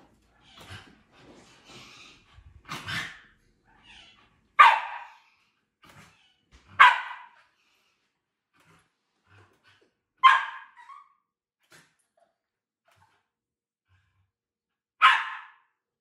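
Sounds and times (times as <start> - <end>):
dog barking: 4.6 - 5.2, 6.8 - 7.4, 10.2 - 11.0, 15.0 - 15.7.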